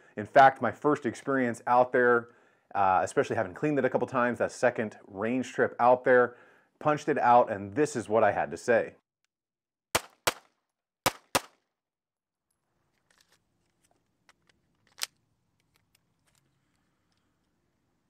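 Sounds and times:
pistol shots: 0:10.0 - 0:11.6
pistol handling clicks: 0:14.3 - 0:16.4.

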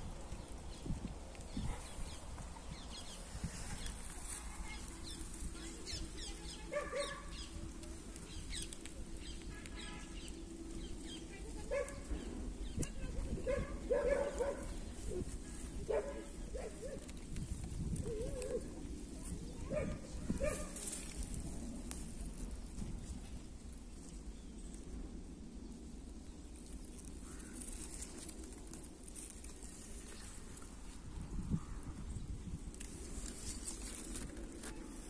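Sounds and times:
small birds chirping: 0:00.1 - 0:18.6.

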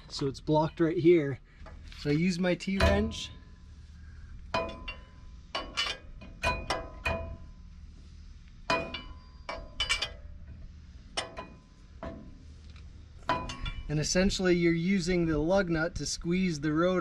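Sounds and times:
lug wrench clinking on nut: 0:08.7 - 0:10.3.

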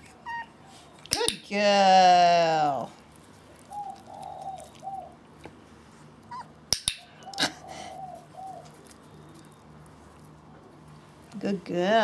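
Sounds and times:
puppy whimpering: 0:00.0 - 0:00.6, 0:06.3 - 0:06.6.

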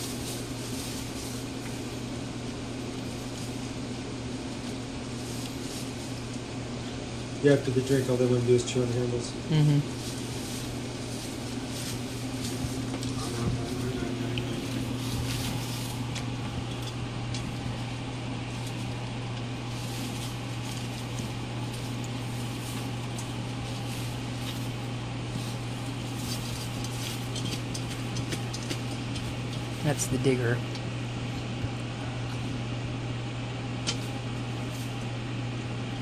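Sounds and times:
paper bedding rustling: 0:00.0 - 0:06.9, 0:09.8 - 0:16.7, 0:17.4 - 0:30.0
steady low hum: 0:00.0 - 0:36.0.

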